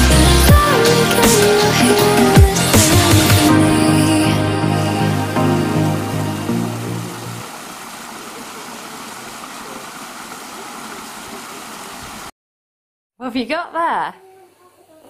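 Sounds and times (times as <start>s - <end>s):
small waterfall rushing: 6.8s - 12.3s
stream cascading over rocks: 7.2s - 12.3s.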